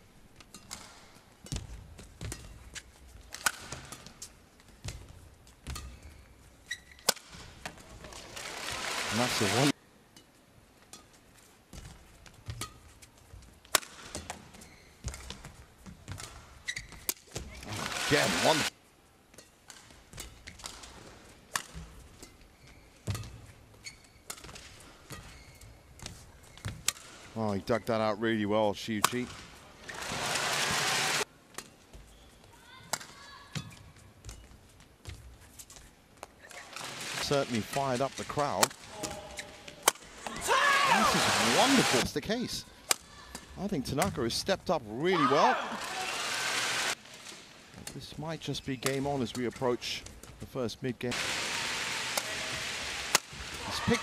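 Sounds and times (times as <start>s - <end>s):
racket hitting shuttlecock: 0.4s - 5.0s, 5.6s - 6.2s, 6.9s - 7.8s, 13.6s - 15.5s, 19.3s - 22.4s, 26.0s - 27.3s, 38.6s - 41.0s, 51.2s - 54.0s
shoes squeaking on floor: 4.0s - 7.1s, 14.2s - 18.6s, 22.0s - 26.8s, 31.7s - 36.9s, 39.0s - 39.8s
shoe squeak: 5.8s - 7.1s, 14.5s - 15.3s, 16.6s - 17.1s, 22.5s - 24.3s, 25.1s - 26.8s, 31.9s - 32.7s, 39.2s - 39.7s
racket striking shuttlecock: 7.0s - 7.5s, 13.7s - 14.4s, 39.8s - 40.4s, 51.2s - 54.0s.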